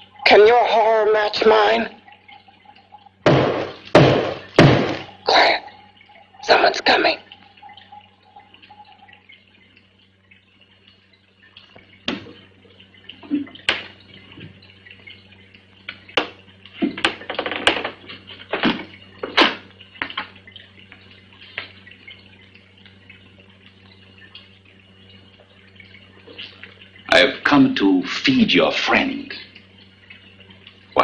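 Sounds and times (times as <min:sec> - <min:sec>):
footsteps on wooden stairs: 0:03.3 - 0:05.2.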